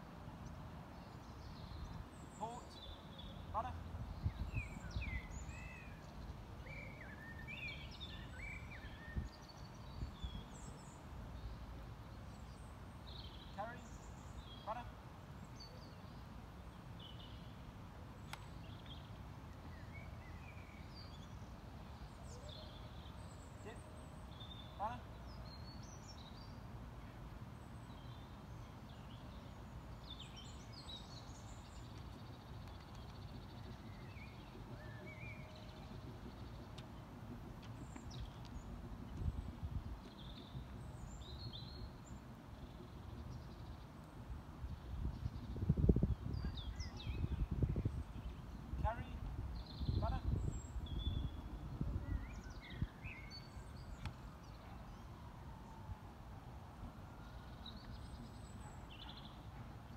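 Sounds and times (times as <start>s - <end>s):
small birds singing and chirping: 0.4s - 55.8s, 57.2s - 59.9s
wind rumble on microphone: 3.9s - 6.6s, 7.8s - 11.0s, 32.4s - 58.8s.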